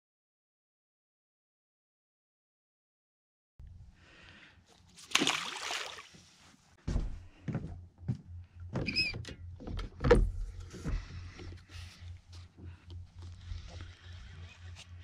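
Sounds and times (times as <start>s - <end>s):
splash in water: 5.0s - 6.2s.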